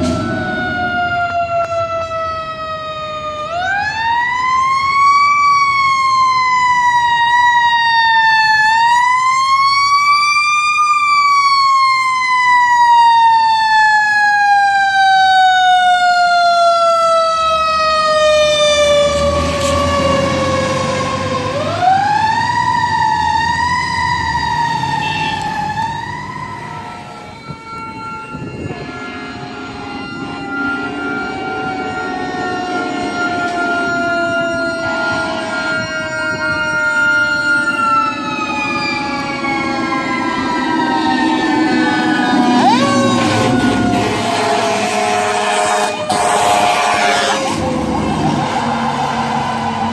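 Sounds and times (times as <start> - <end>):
truck engine: 0.0 - 12.8, 15.7 - 49.9
fire engine siren wailing: 0.0 - 49.9.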